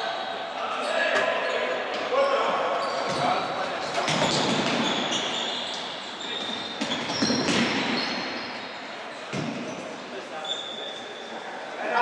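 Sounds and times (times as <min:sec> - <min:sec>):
sports shoes squeaking: 0:00.1 - 0:11.4.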